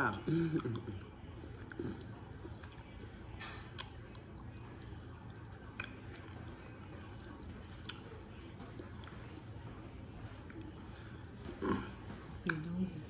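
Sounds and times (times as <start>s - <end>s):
person chewing: 0.6s - 12.8s
wet mouth clicks: 3.7s - 4.4s, 5.6s - 6.0s, 12.4s - 12.7s.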